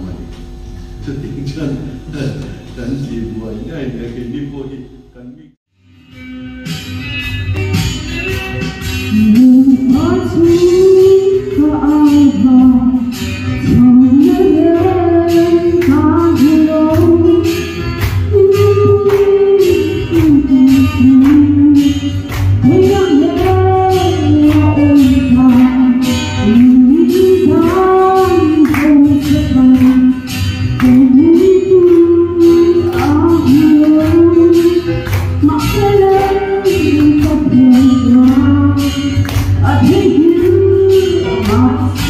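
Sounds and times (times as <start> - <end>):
music with a steady beat: 5.8 - 42.0
woman singing into a microphone: 9.1 - 42.0.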